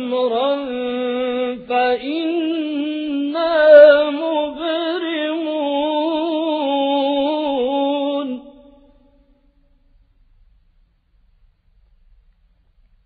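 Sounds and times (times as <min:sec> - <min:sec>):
man chanting melodically: 0:00.0 - 0:09.2.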